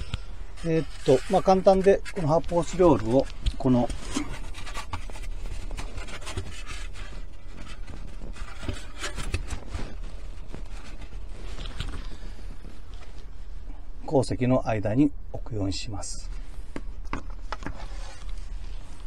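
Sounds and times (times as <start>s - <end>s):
foam block scraping plastic trim: 0.5s - 11.9s.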